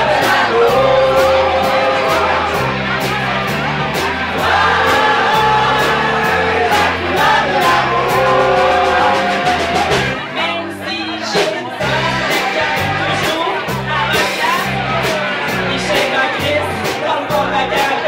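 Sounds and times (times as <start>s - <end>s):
person singing: 0.0s - 2.8s, 4.4s - 18.0s
bass line: 0.0s - 18.0s.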